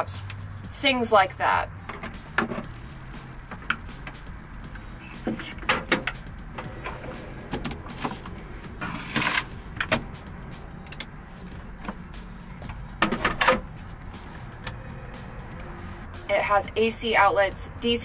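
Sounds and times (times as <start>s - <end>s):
plugs and cables clicking: 5.2s - 10.1s, 10.8s - 11.2s.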